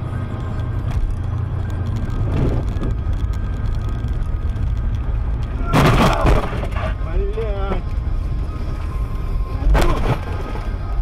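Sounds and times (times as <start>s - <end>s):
car road and engine rumble: 0.0s - 11.0s
car crashing into metal guardrail: 5.6s - 6.8s.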